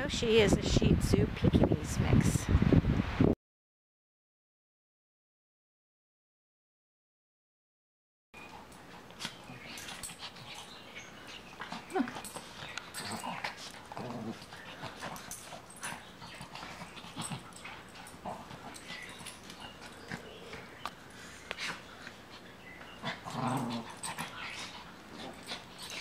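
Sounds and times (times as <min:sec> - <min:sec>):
dogs scuffling: 0:08.4 - 0:26.0
dog whimpers: 0:09.2 - 0:13.4
dog growls: 0:11.5 - 0:20.8, 0:22.9 - 0:26.0.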